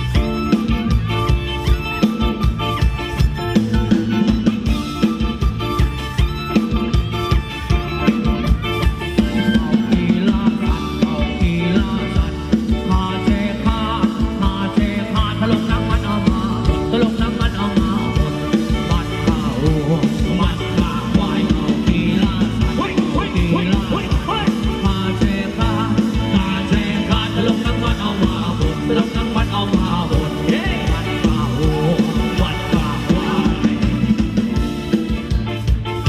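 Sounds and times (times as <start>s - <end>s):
drum beat: 0.0s - 36.0s
live band playing dance music: 0.0s - 36.0s.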